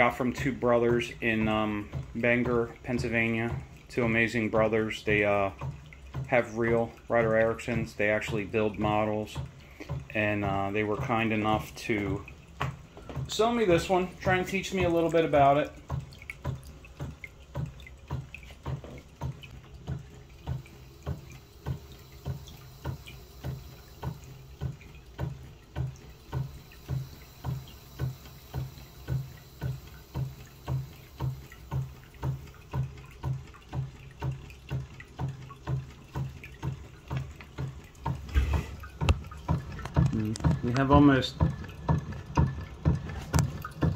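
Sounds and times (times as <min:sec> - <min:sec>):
water spurting into glass jar: 0:00.0 - 0:43.9
hot air pumping engine running: 0:20.4 - 0:32.9, 0:38.2 - 0:43.9.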